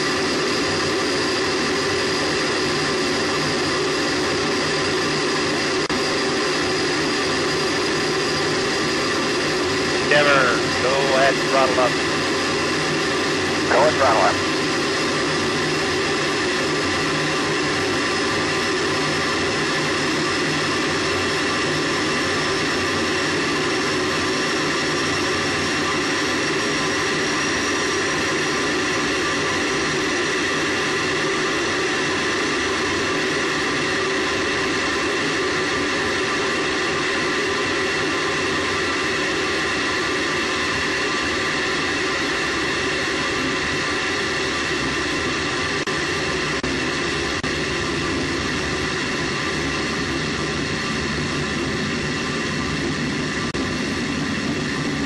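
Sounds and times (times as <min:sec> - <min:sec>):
rocket booster roaring: 0:13.6 - 0:14.6.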